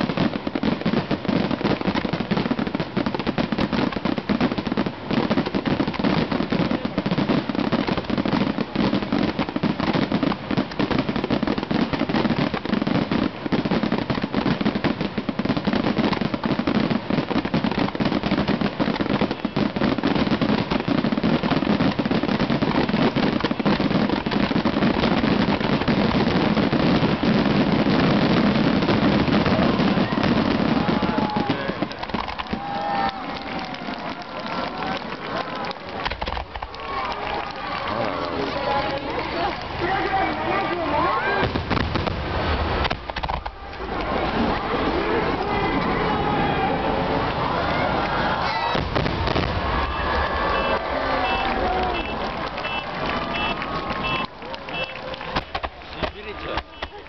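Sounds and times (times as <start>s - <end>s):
fireworks bursting rapidly: 0.0s - 57.0s.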